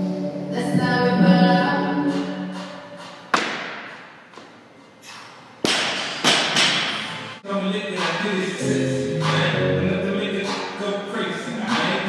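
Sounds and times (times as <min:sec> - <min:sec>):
music with singing: 0:00.0 - 0:03.3, 0:07.4 - 0:12.0.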